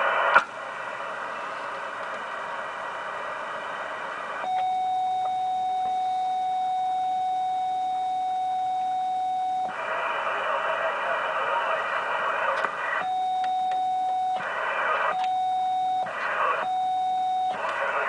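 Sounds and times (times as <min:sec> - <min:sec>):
receiver hiss: 0:00.0 - 0:18.0
steady radio beep: 0:04.4 - 0:18.0.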